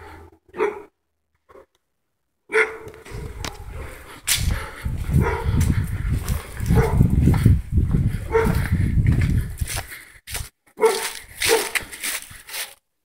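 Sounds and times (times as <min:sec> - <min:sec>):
dog barking: 0:00.0 - 0:01.0, 0:02.5 - 0:07.2, 0:08.2 - 0:08.7, 0:10.8 - 0:11.8
low rumble: 0:03.0 - 0:09.7.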